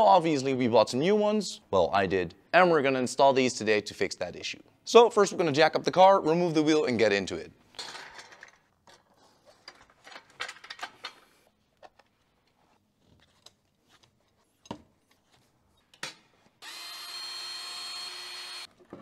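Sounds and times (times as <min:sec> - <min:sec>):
cordless power tool running: 0:16.6 - 0:18.7.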